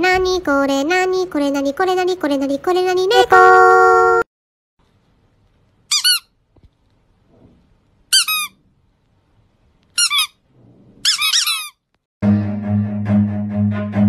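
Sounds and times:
high-pitched chirping squeaks: 0:10.0 - 0:10.4, 0:11.0 - 0:11.9.

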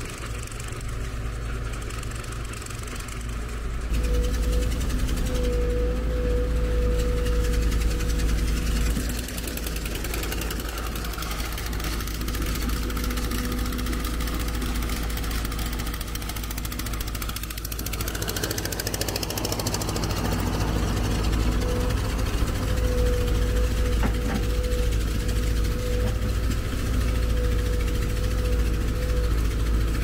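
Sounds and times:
heavy machinery engine running: 0:00.0 - 0:30.0
steady whine: 0:00.0 - 0:30.0.

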